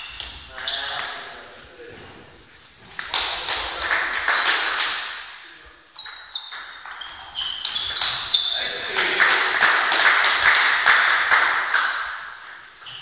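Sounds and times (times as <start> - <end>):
short high squeaks: 5.9 - 8.8.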